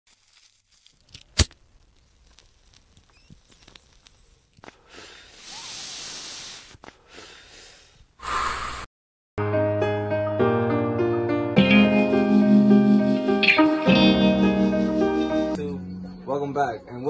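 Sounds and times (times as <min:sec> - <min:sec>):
faint crackles: 0:00.1 - 0:04.8.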